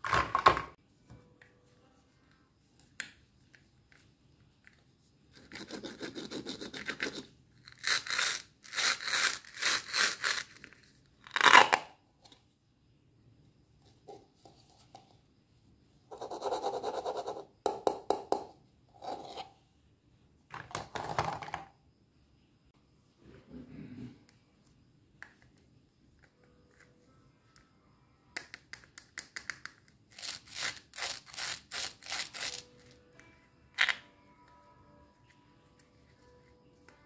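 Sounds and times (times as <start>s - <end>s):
hook-and-loop fastener ripping: 11.2s - 11.9s.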